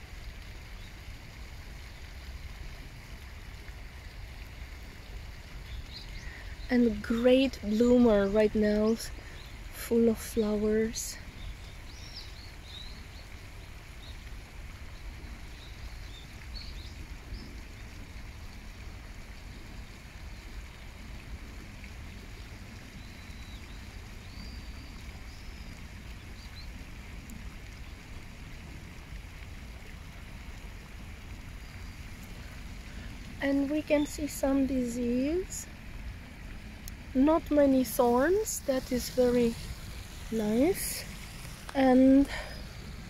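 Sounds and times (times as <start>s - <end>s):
steady low rumble: 30.6s - 43.0s.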